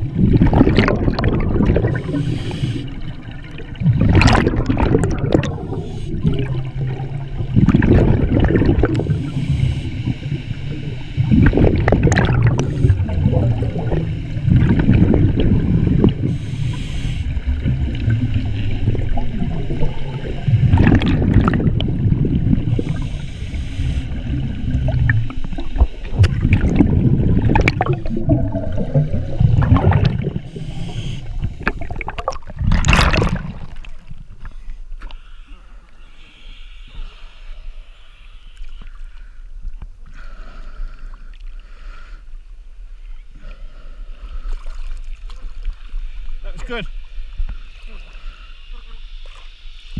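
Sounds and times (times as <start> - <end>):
exhaled bubbles rumbling: 0.0 - 34.5
regulator hissing: 15.6 - 20.8.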